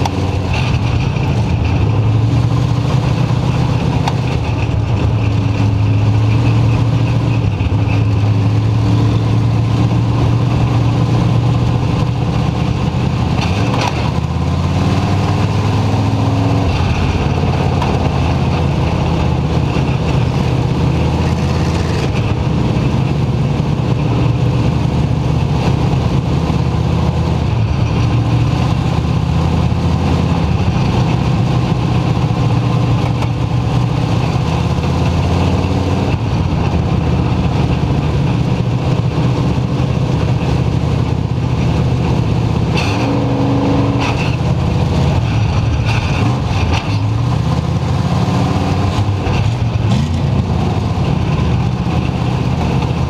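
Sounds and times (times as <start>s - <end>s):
race car engine running loud: 0.0s - 53.0s.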